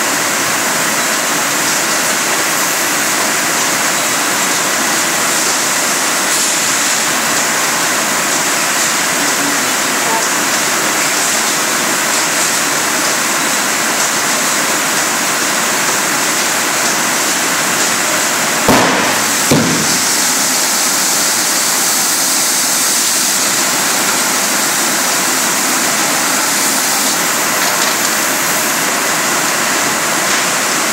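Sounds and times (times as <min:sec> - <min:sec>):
bottle filling machine hissing: 0:00.0 - 0:30.9
sharp bangs: 0:18.7 - 0:20.6.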